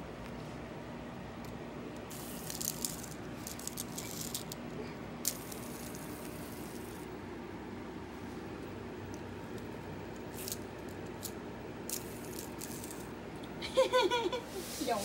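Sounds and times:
fidget spinner whirring rattle: 0:02.0 - 0:07.2, 0:09.5 - 0:13.2, 0:13.8 - 0:15.0.

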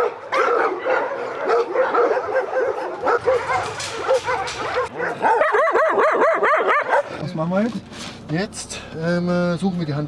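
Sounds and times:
dogs barking and yelping: 0:00.0 - 0:07.2.

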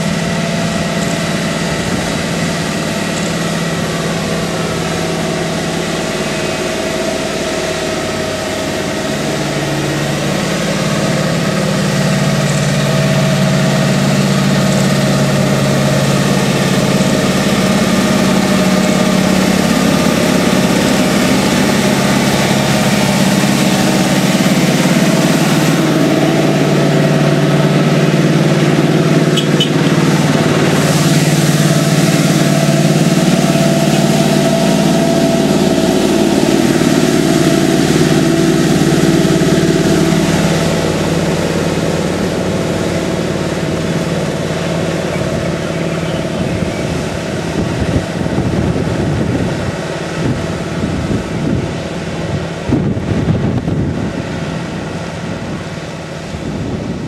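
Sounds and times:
heavy diesel engine running: 0:00.0 - 0:57.0
wind buffeting microphone: 0:01.6 - 0:04.8, 0:43.8 - 0:57.0.

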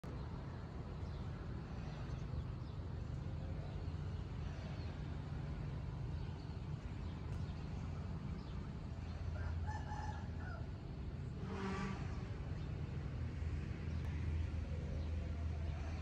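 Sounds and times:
steady low rumble: 0:00.0 - 0:16.0
rooster crowing: 0:09.3 - 0:10.8.

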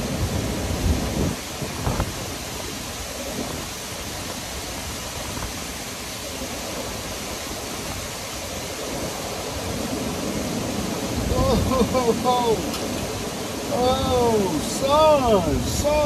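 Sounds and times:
river water rushing: 0:00.0 - 0:16.0
wind: 0:00.0 - 0:16.0.

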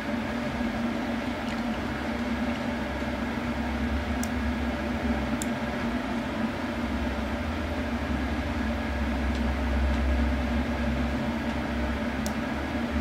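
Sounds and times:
steady machine hum: 0:00.0 - 0:13.0.

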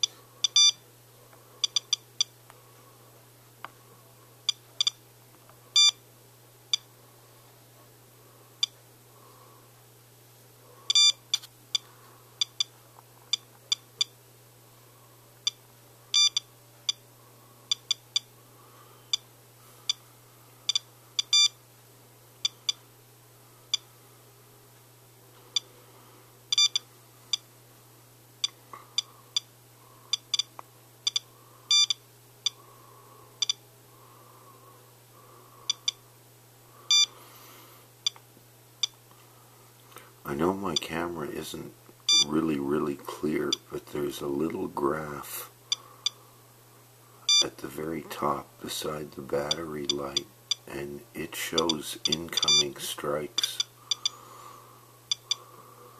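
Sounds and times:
dosimeter short beeps: 0:00.0 - 0:00.8, 0:04.5 - 0:05.0, 0:05.8 - 0:06.0, 0:10.9 - 0:11.4, 0:16.2 - 0:17.0, 0:20.7 - 0:21.6, 0:26.5 - 0:27.4, 0:31.1 - 0:32.0, 0:36.9 - 0:37.1, 0:42.1 - 0:42.3, 0:47.3 - 0:47.5, 0:51.6 - 0:52.8, 0:53.5 - 0:54.2, 0:55.1 - 0:55.4.

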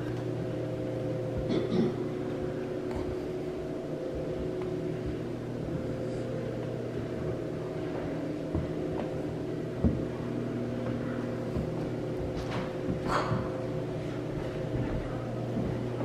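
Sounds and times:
steady machine hum: 0:00.0 - 0:16.0.

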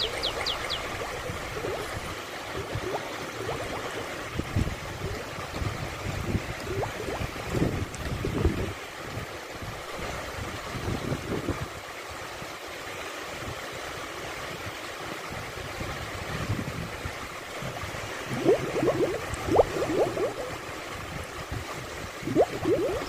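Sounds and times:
gurgling and bubbling water: 0:00.0 - 0:11.5, 0:16.5 - 0:23.0
small waves washing on beach: 0:00.0 - 0:23.0.

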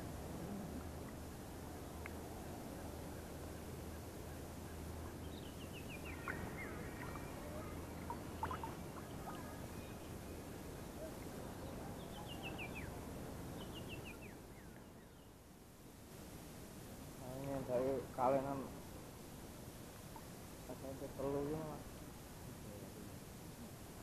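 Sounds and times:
faint clicks: 0:02.0 - 0:02.2.

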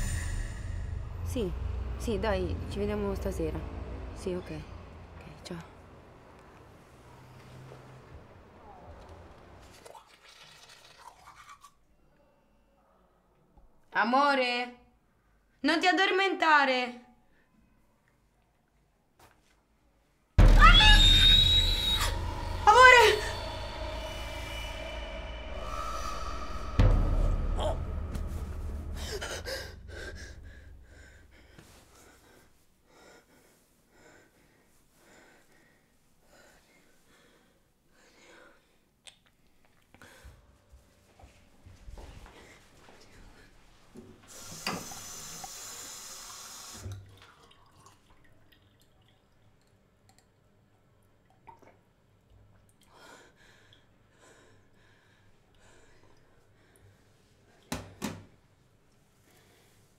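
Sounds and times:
woman breathing: 0:00.0 - 0:01.9, 0:22.1 - 0:38.9
deep boom: 0:00.0 - 0:05.2, 0:20.4 - 0:31.0
low thump: 0:20.4 - 0:29.2.

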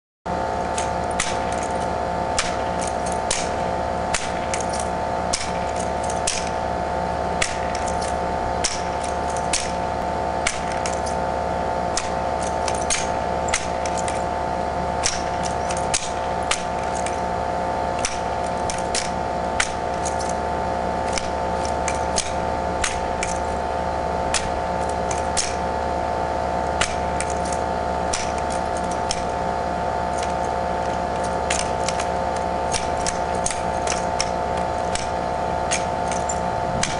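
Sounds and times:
steady multi-tone hum: 0:00.3 - 0:36.9.

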